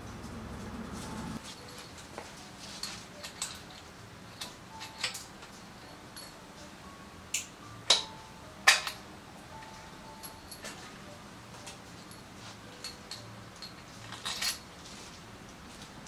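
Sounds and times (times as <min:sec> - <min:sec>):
metal tools clinking and knocking: 0:01.4 - 0:06.5, 0:07.9 - 0:09.0, 0:10.1 - 0:10.9, 0:11.6 - 0:14.7.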